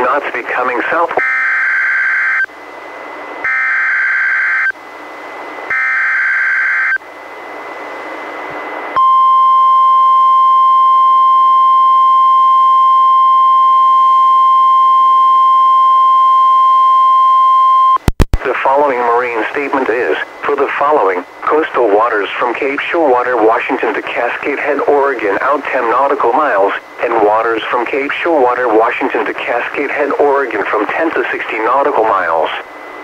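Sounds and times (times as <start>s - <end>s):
radio hiss: 0.0s - 1.2s, 18.2s - 33.0s.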